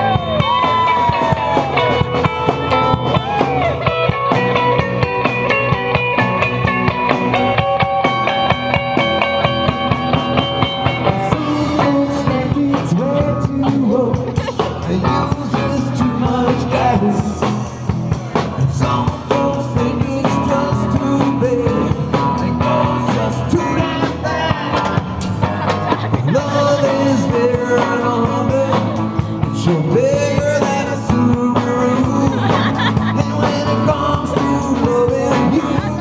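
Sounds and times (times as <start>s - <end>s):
distorted electric guitars: 0.0s - 36.0s
drum kit: 0.0s - 36.0s
man singing: 11.0s - 36.0s.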